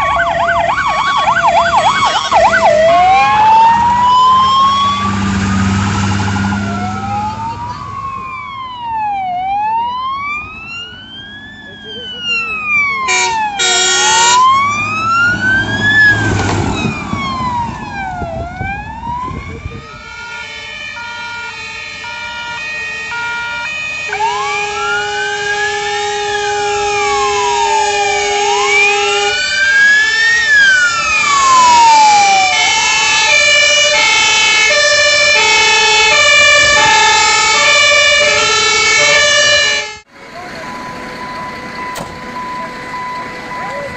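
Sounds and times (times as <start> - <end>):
fire engine sirens wailing: 0.0 - 43.9
two-tone horns: 13.1 - 14.5, 19.9 - 29.8, 32.5 - 40.1.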